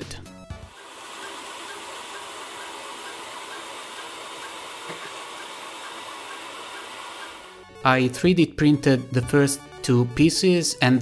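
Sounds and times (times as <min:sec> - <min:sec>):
three-d printer whirring: 0:00.7 - 0:07.6.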